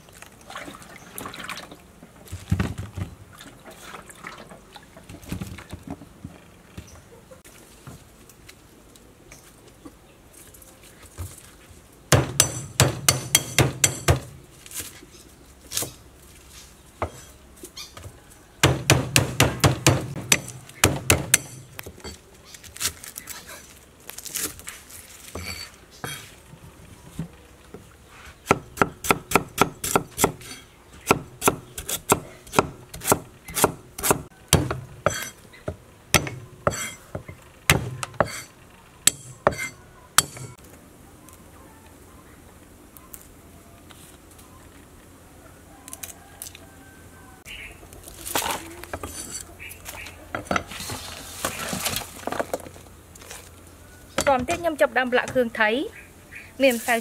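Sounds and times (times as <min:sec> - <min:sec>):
cleaver chopping on wooden block: 0:12.1 - 0:14.3, 0:18.6 - 0:21.7, 0:28.4 - 0:38.4, 0:39.1 - 0:40.6.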